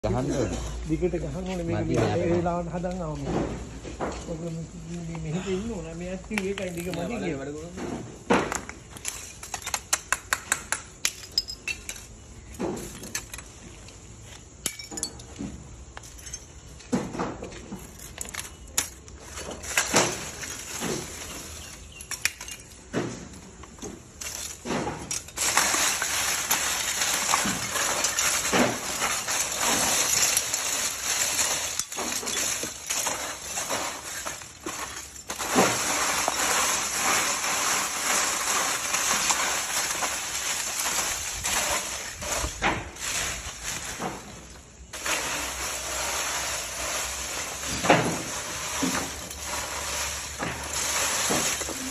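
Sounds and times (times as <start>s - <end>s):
gritty rattling of crushed charcoal: 0.0s - 51.9s
charcoal pieces clinking: 6.2s - 7.5s, 8.5s - 14.0s, 17.7s - 23.0s, 23.6s - 44.0s, 44.9s - 51.9s.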